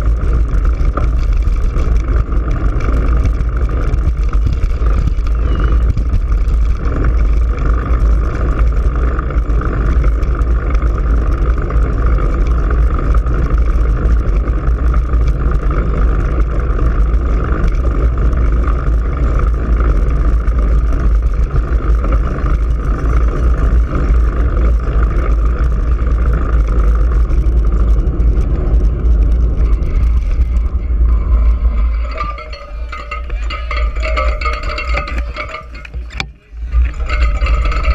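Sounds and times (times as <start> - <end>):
wind buffeting microphone: 0.0 - 37.9.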